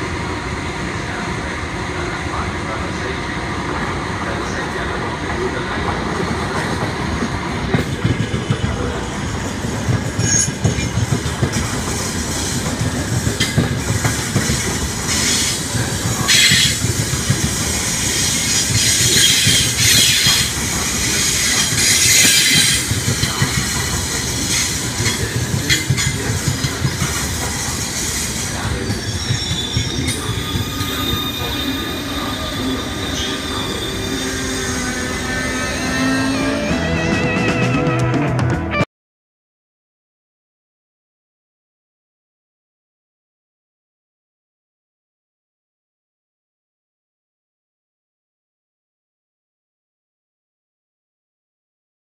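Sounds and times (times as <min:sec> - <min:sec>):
train wheels rumbling on rails: 0:00.0 - 0:38.7
wheel and brake squeal: 0:28.7 - 0:36.8.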